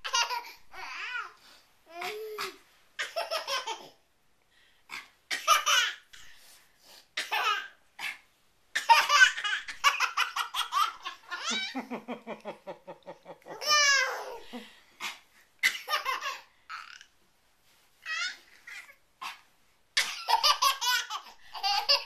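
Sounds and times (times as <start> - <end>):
baby laughing: 0.0 - 1.3, 1.9 - 4.0, 8.8 - 12.1, 13.0 - 17.1, 20.0 - 22.0.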